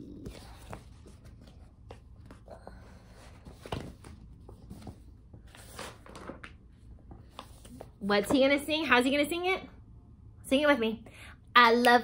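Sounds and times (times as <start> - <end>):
paper rustling: 3.2 - 7.9
pages turning: 3.4 - 7.9.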